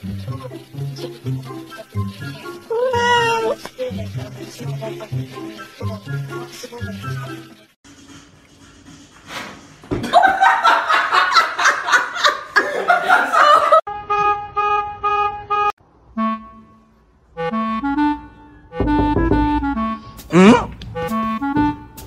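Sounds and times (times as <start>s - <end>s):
person laughing hard: 10.0s - 13.8s.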